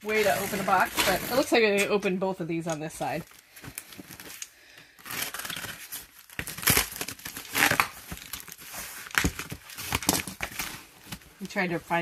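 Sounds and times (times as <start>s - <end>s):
cardboard box rustling and scraping: 0.0s - 1.8s.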